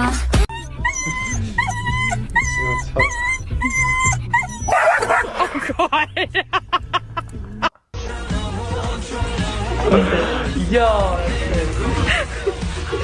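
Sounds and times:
dog whining: 0.5s - 5.3s
dog barking harshly: 4.6s - 5.5s
man laughing: 5.0s - 7.7s, 9.8s - 10.6s, 11.8s - 13.0s.

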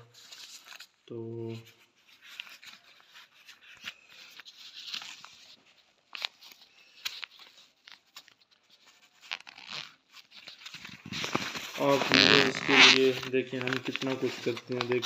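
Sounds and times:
fabric case rustling: 9.0s - 15.0s.

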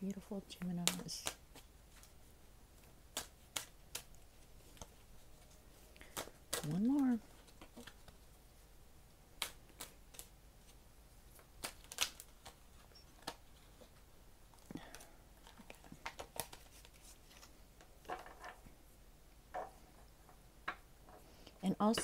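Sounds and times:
cards being shuffled: 0.6s - 8.5s, 9.4s - 14.0s, 14.6s - 18.6s.

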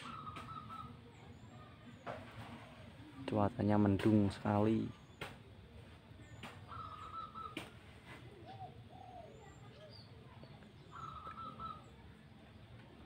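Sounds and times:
doves cooing softly: 0.0s - 1.2s, 6.6s - 9.6s, 10.6s - 12.2s
small birds chirping: 0.0s - 13.0s.

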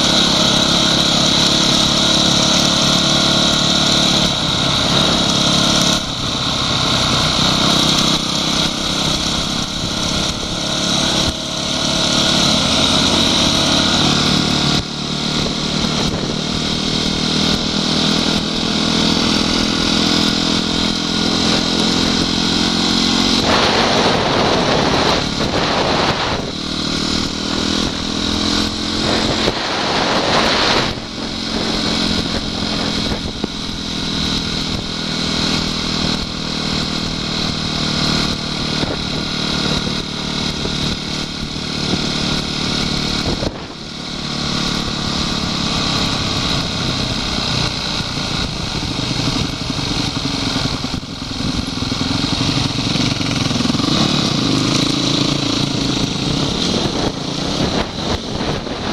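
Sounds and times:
motorcycle engine running: 0.0s - 58.9s
rushing noise: 17.2s - 36.3s, 51.6s - 58.9s.

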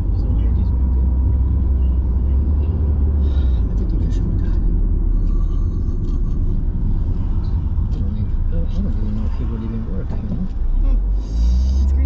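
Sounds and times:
car engine and tyre rumble: 0.0s - 12.0s.

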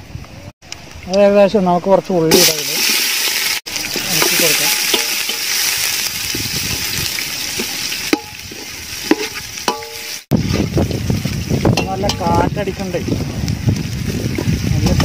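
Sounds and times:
onions sizzling in hot fat: 2.2s - 15.0s
metal spoon stirring in a pot: 3.8s - 5.9s, 7.4s - 10.6s.

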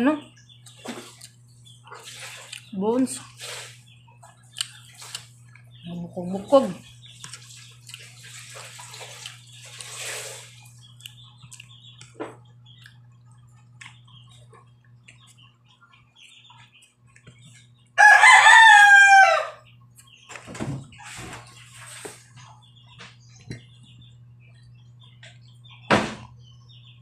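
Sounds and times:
rooster crowing: 18.0s - 19.7s.

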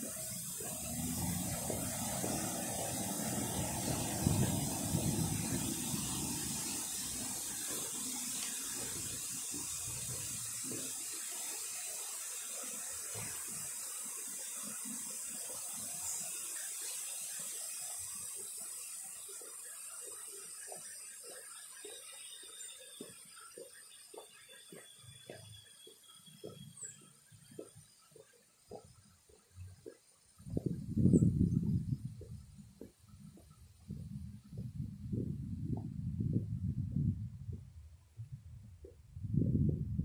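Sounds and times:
fountain water splashing: 0.0s - 33.6s
low rumble: 30.5s - 40.0s.

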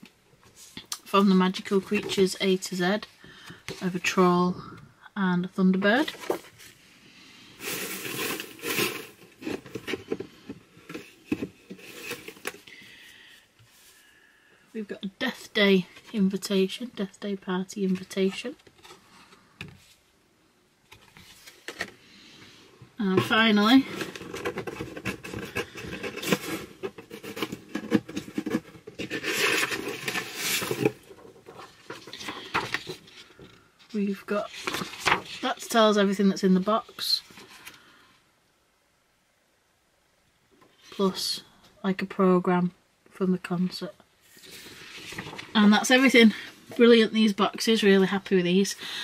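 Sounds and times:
paper and packaging rustling: 5.8s - 6.8s, 7.6s - 13.0s, 20.9s - 22.0s, 23.0s - 33.5s, 34.1s - 35.8s, 44.3s - 47.0s.

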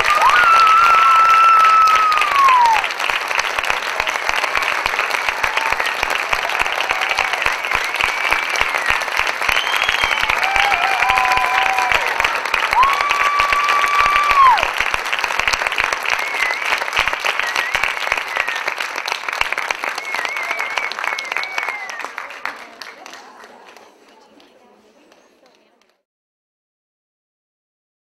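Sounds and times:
high-pitched cheers: 0.0s - 3.0s, 3.6s - 14.9s, 19.8s - 22.2s
audience applauding: 0.0s - 24.5s.

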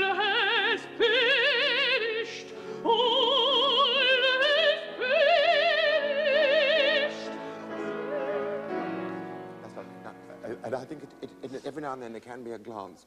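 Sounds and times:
operatic singing: 0.0s - 9.8s
quiet musical accompaniment: 0.0s - 13.0s.

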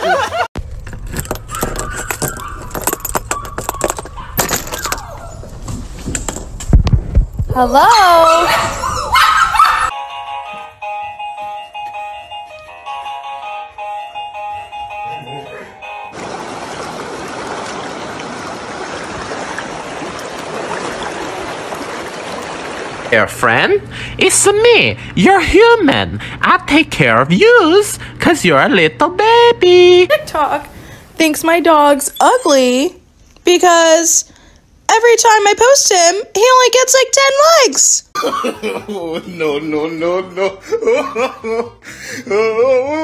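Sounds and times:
door handle and latch rattling: 0.8s - 5.1s
puppies whining: 1.2s - 5.6s, 8.2s - 10.0s, 32.0s - 32.9s
water rushing over rocks: 16.2s - 23.1s.

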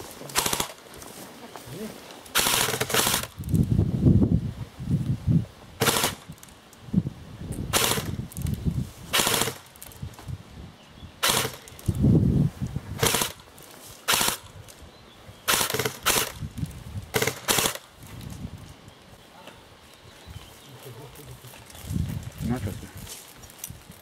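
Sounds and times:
airsoft rifles firing bursts: 0.4s - 0.8s, 2.3s - 3.4s, 5.8s - 6.3s, 7.7s - 8.2s, 9.1s - 9.7s, 11.2s - 11.7s, 13.0s - 13.4s, 14.1s - 14.5s, 15.5s - 16.4s, 17.1s - 17.9s.

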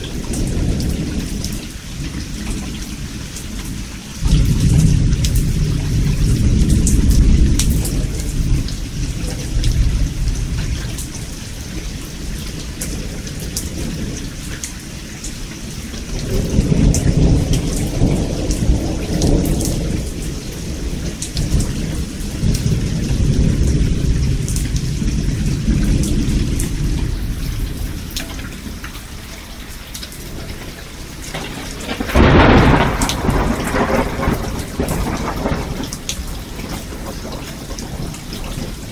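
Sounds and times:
rolling thunder: 0.0s - 14.6s, 15.3s - 38.9s
steady rain: 0.0s - 38.9s
sharp thunderclap: 4.2s - 10.8s, 16.2s - 28.2s, 31.3s - 38.9s.

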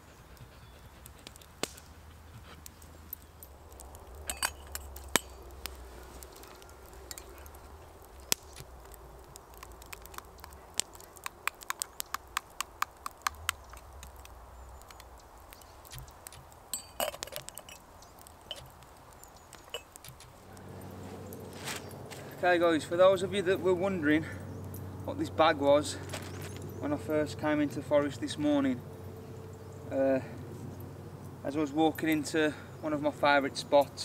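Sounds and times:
metal spoon clinking on pot: 4.2s - 5.3s, 16.7s - 17.8s.

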